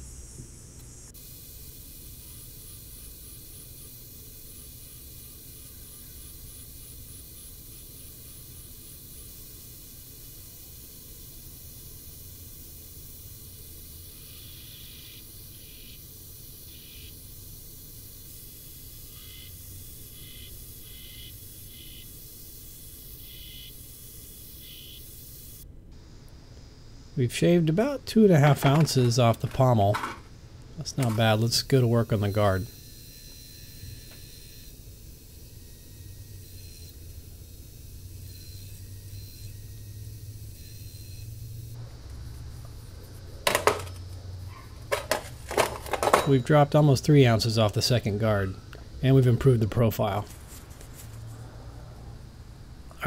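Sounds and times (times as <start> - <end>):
faint high whine: 0.0 - 53.0
belt grinder grinding steel: 43.4 - 46.8.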